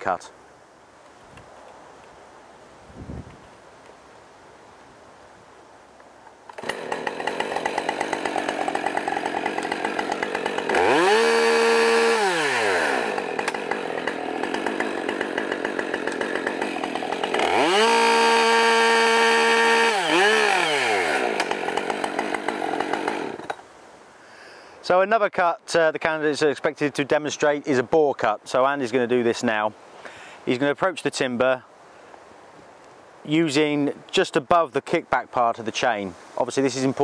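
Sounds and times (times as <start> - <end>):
chainsaw revving and idling: 6.5 - 23.6
chainsaw cutting log: 6.5 - 23.7.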